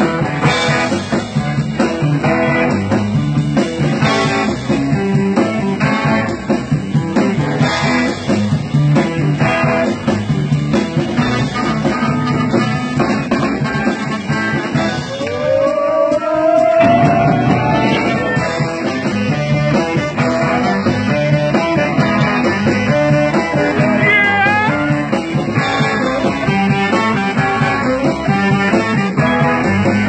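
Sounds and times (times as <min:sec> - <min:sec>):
blues band playing: 0:00.0 - 0:30.0
lead guitar bending notes: 0:16.8 - 0:30.0.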